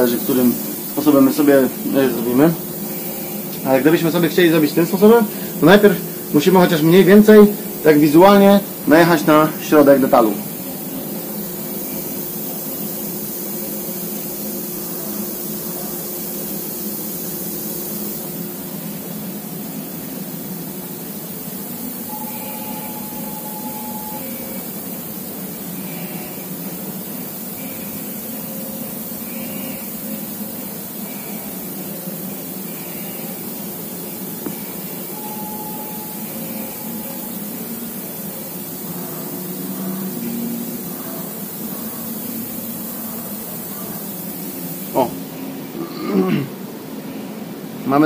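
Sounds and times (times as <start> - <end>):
milling machine hiss: 0.0 - 48.0
faint tone: 22.0 - 24.8, 34.5 - 37.8.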